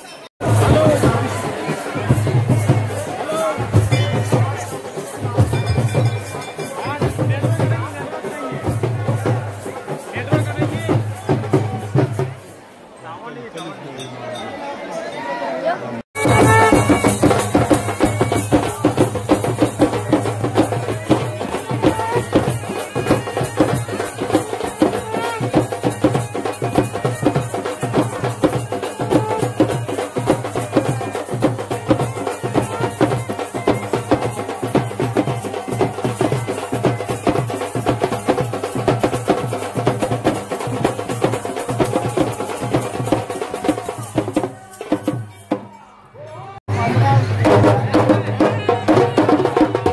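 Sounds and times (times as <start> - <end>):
fast steady drumming: 0.4 - 12.4, 16.2 - 45.7, 46.7 - 49.9
reedy wind instrument melody: 16.2 - 19.7.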